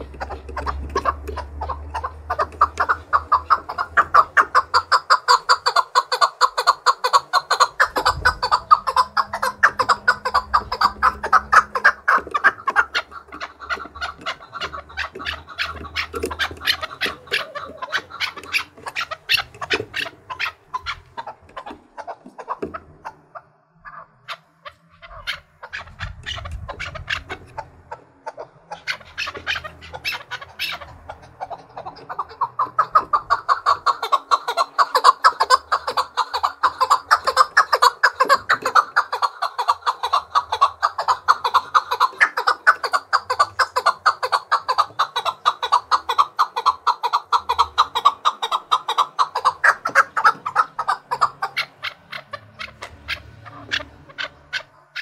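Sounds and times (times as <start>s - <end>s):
partridge chuck calls: 0.0s - 55.0s.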